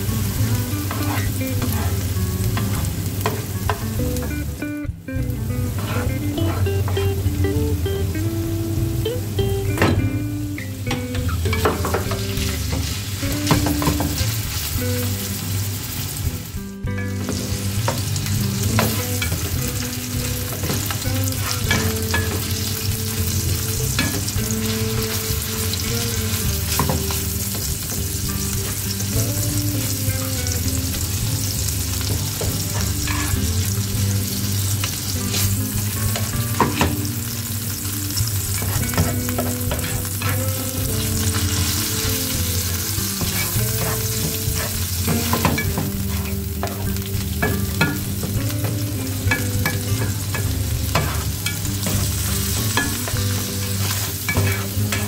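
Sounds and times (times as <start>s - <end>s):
meat sizzling in frying pan: 0.0s - 9.4s, 10.1s - 55.0s
spatula scraping pan: 0.6s - 3.5s, 5.7s - 7.2s, 32.2s - 33.6s, 38.6s - 48.4s, 49.3s - 55.0s.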